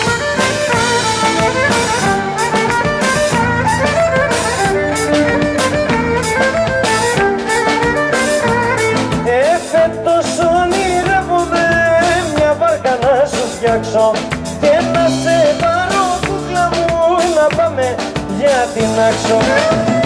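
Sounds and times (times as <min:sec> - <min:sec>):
violin melody: 0:00.0 - 0:12.1
drum kit beat: 0:00.0 - 0:20.0
keyboards: 0:00.0 - 0:20.0
man singing: 0:08.8 - 0:20.0.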